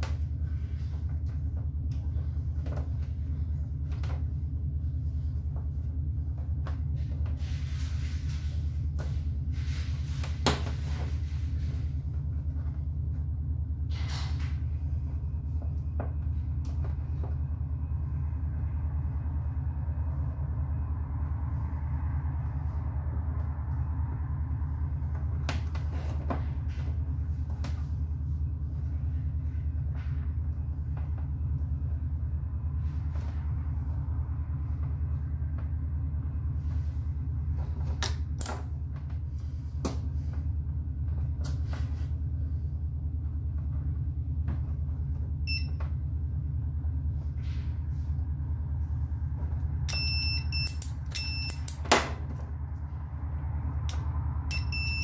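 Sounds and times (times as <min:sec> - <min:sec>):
steady low hum: 0:00.0 - 0:55.0
multimeter beeps: 0:45.4 - 0:45.8, 0:49.9 - 0:51.8, 0:54.5 - 0:55.0.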